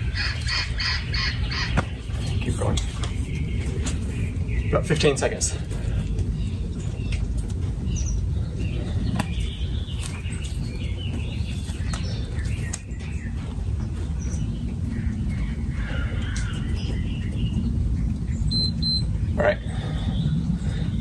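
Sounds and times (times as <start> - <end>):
birds chirping: 0.0 - 21.0
short high beeps: 18.5 - 19.1.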